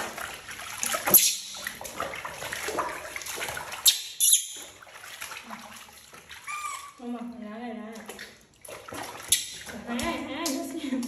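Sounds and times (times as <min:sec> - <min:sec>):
water splashing in a basin: 0:00.0 - 0:11.0
high squeak: 0:06.5 - 0:07.0.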